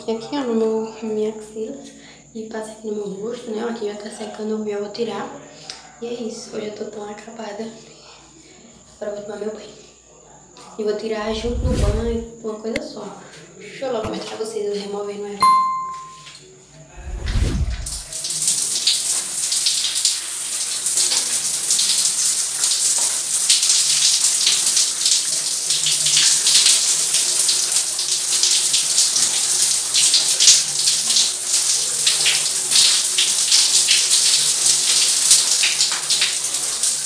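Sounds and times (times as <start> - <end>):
shower spraying water: 17.0 - 37.0
water spattering on tiles: 17.6 - 37.0.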